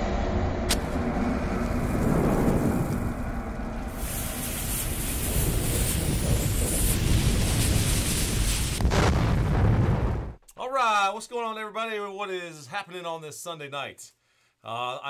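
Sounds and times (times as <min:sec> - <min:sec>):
explosion: 0:00.0 - 0:10.4
low rumble: 0:00.0 - 0:10.4
sizzling fuse hiss: 0:01.6 - 0:08.8.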